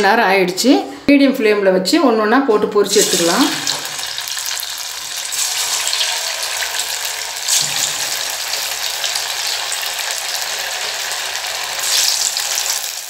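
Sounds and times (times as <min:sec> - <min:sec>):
fish sizzling in hot oil: 0:02.9 - 0:13.0.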